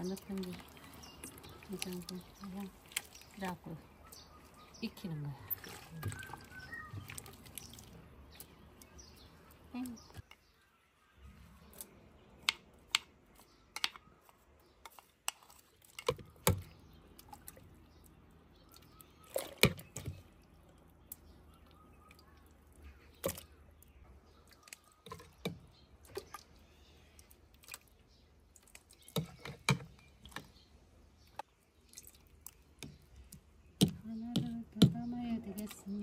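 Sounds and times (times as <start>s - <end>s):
brine sloshing: 0.0s - 4.6s.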